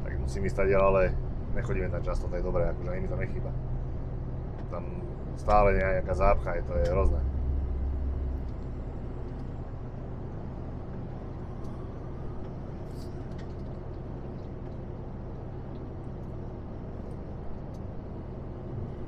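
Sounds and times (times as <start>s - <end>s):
lorry engine low hum: 0.0s - 19.0s
tyre and road noise: 0.0s - 19.0s.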